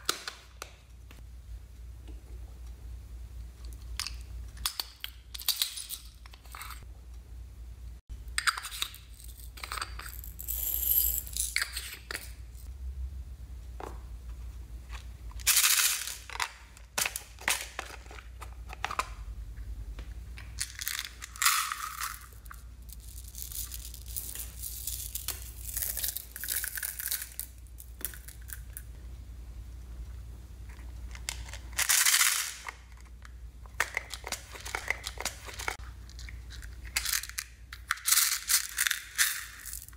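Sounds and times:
plastic beads rattling and pouring: 9.3s - 11.5s, 20.6s - 28.6s, 38.0s - 39.9s.

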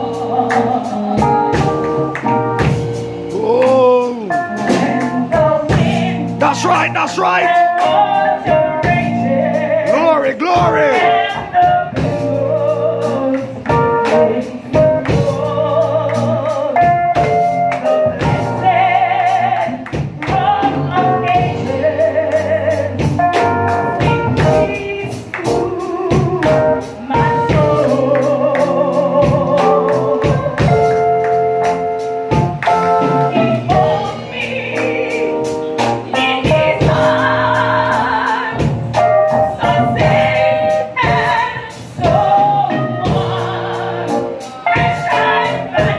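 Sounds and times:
woman singing gospel song: 0.0s - 45.9s.

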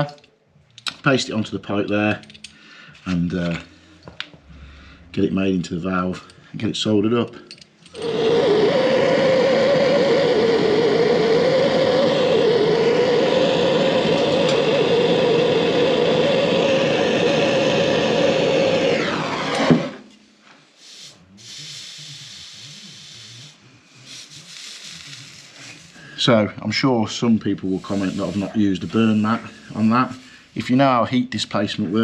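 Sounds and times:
blowtorch hissing: 8.0s - 20.2s, 27.6s - 29.9s
blowtorch pop: 8.0s - 20.2s
cloth rubbing: 27.7s - 30.2s.

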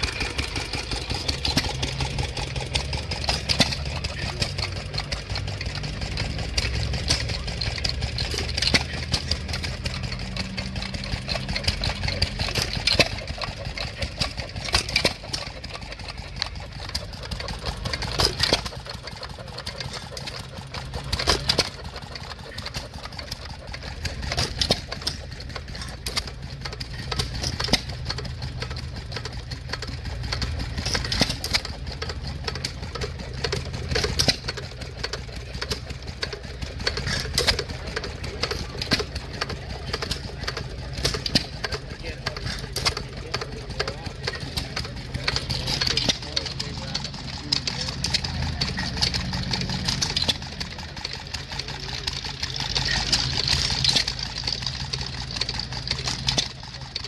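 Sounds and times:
engine firing crack: 0.0s - 57.0s
stationary gas engine running: 0.0s - 57.0s.

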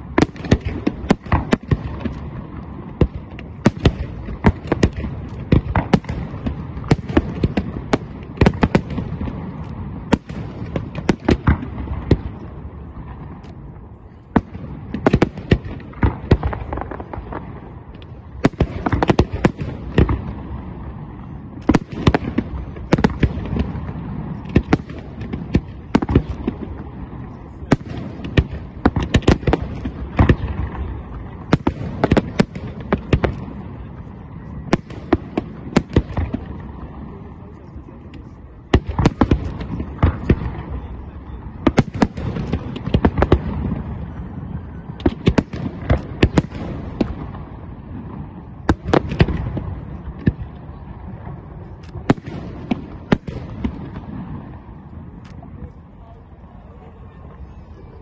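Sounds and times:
continuous rumble: 0.0s - 58.0s
fireworks bangs and crackles: 0.0s - 58.0s.

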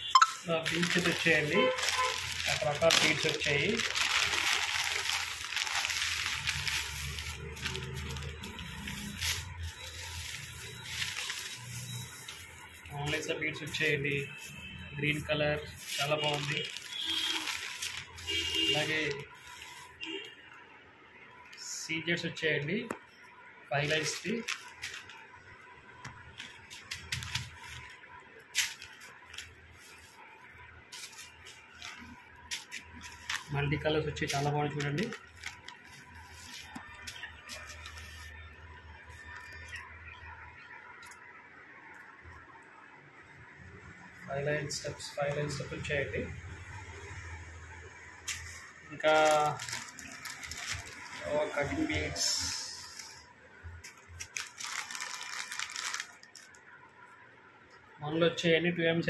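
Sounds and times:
plastic bag and bubble wrap crinkling: 0.4s - 20.3s, 23.7s - 25.2s, 26.0s - 40.2s, 48.3s - 56.7s
beads rustling and clicking: 0.5s - 20.0s, 26.3s - 30.3s, 30.9s - 38.4s, 48.3s - 51.2s, 52.2s - 56.7s.

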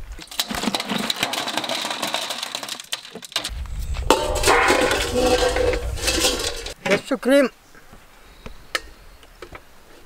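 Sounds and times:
steel bowl knocking and ringing: 4.0s - 6.8s.

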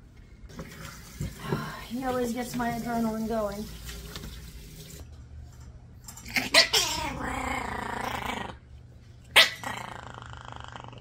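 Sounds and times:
puppy growling and snarling: 6.2s - 11.0s.

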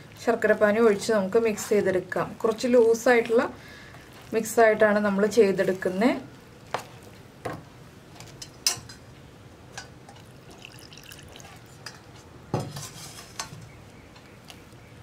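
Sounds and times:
syrup trickling: 10.2s - 11.9s.

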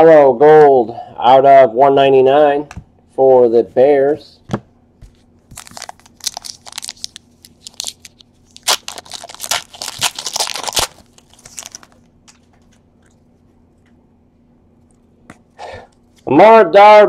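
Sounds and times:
wrapper crackling and tearing: 5.5s - 12.5s.

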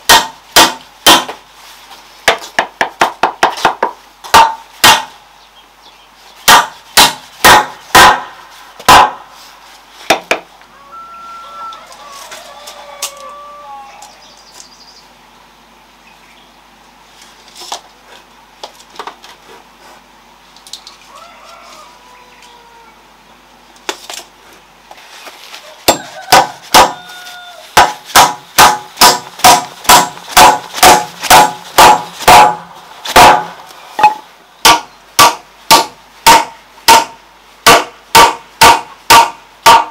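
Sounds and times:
hammer striking a wood chisel: 0.1s - 1.3s, 2.3s - 5.1s, 6.5s - 8.1s, 27.8s - 39.9s.

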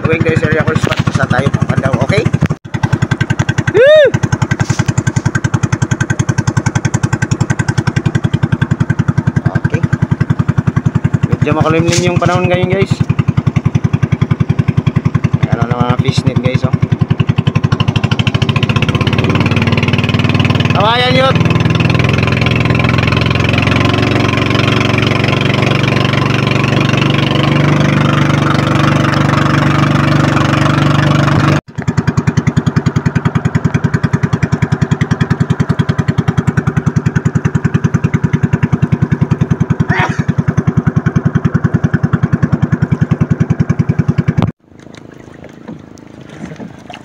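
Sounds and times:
boat engine chugging: 0.0s - 47.0s.

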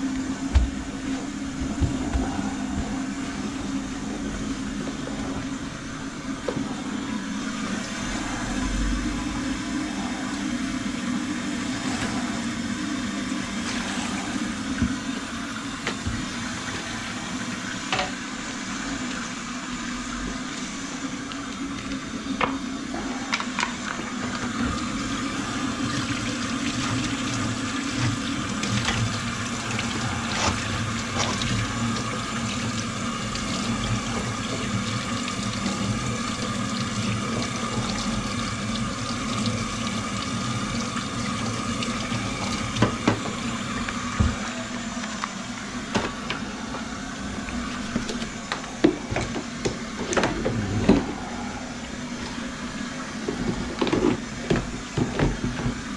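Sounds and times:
water running into a sink: 0.0s - 55.9s.

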